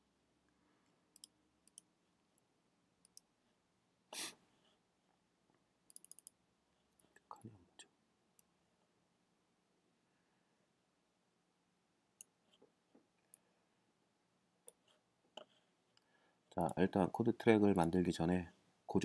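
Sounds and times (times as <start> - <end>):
faint computer mouse clicks: 1.1 - 1.9, 5.9 - 6.4.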